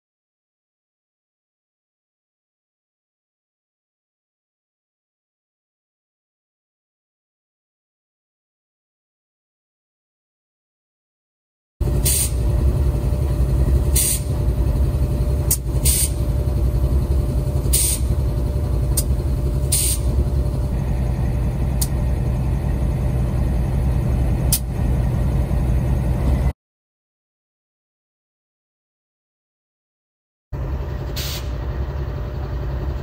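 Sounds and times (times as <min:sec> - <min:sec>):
diesel locomotive engine rumbling: 0:11.8 - 0:26.6, 0:30.6 - 0:33.0
sharp air hisses: 0:12.0 - 0:12.4, 0:13.9 - 0:14.4, 0:15.5 - 0:16.2, 0:17.7 - 0:18.1, 0:19.7 - 0:20.2, 0:31.2 - 0:31.6.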